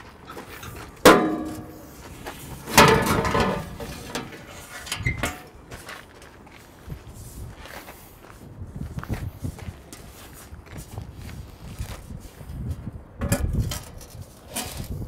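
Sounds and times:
metal pipe clanking: 0:00.2 - 0:05.6
metal pipe scraping: 0:00.2 - 0:05.6.

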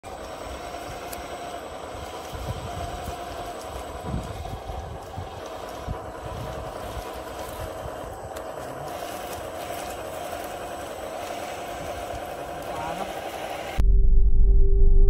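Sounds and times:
toy crawler motor running: 0:00.0 - 0:13.8
tracks over dry leaves: 0:00.2 - 0:13.6.

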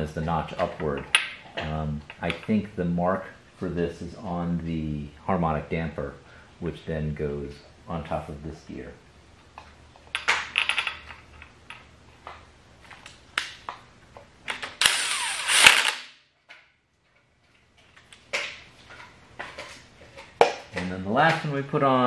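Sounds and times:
cordless power tool running: 0:14.8 - 0:16.0.

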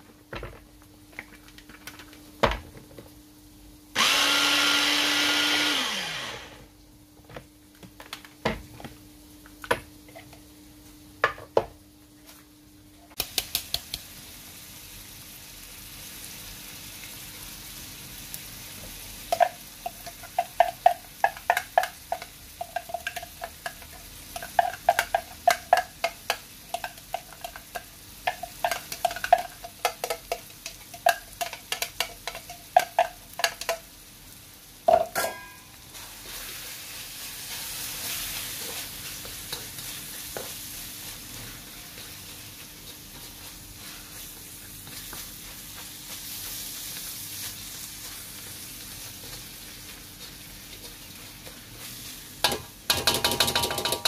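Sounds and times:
food sizzling in wok: 0:03.4 - 0:06.7, 0:13.1 - 0:53.9
knocks on metal wok: 0:52.4 - 0:54.0.

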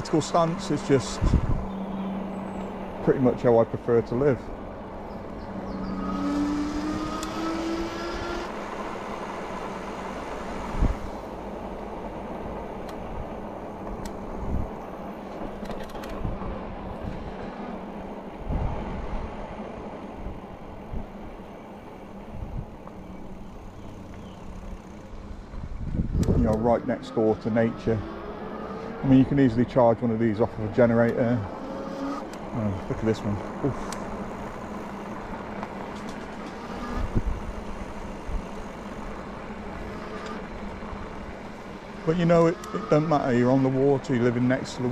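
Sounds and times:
bike rolling on tarmac: 0:00.0 - 0:44.9
wind rush on microphone: 0:01.0 - 0:01.8, 0:10.6 - 0:11.2, 0:14.2 - 0:15.0, 0:16.1 - 0:17.6, 0:18.3 - 0:19.6, 0:20.2 - 0:21.4, 0:22.2 - 0:22.9, 0:25.2 - 0:26.7, 0:36.8 - 0:38.6.

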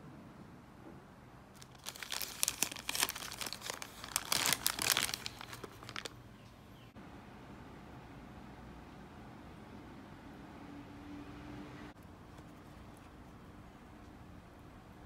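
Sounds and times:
paper bag crinkling: 0:01.6 - 0:06.2.

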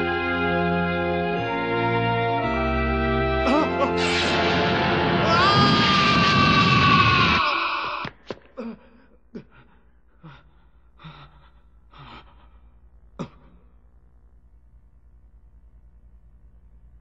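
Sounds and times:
man gasping and panting: 0:08.4 - 0:13.6
faint low hum: 0:08.5 - 0:17.0.

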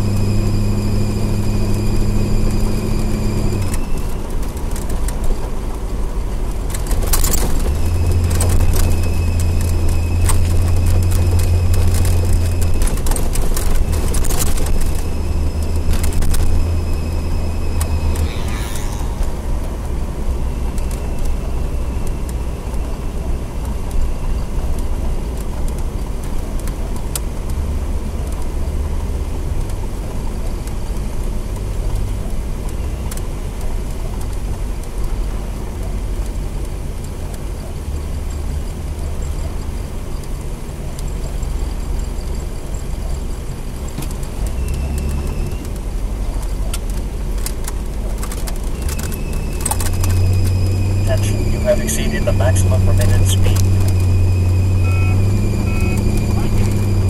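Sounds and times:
car engine and road rumble: 0:00.0 - 0:57.0
faint high whine: 0:07.2 - 0:23.4, 0:48.8 - 0:57.0.

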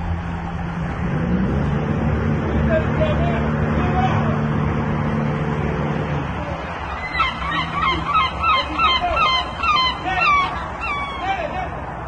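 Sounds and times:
outboard motor running: 0:00.0 - 0:12.0
gull-like calls: 0:06.4 - 0:11.8.

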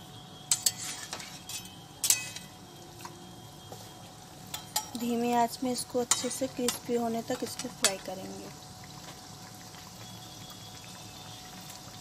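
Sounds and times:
food frying in oil: 0:00.0 - 0:12.0
spatula clinking on steel pan: 0:00.5 - 0:02.5, 0:04.5 - 0:05.0, 0:06.1 - 0:06.8.

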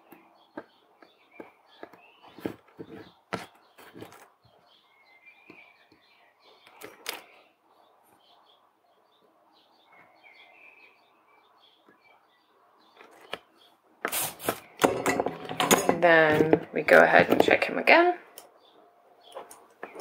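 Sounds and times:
tools knocking and rustling: 0:14.4 - 0:17.7.

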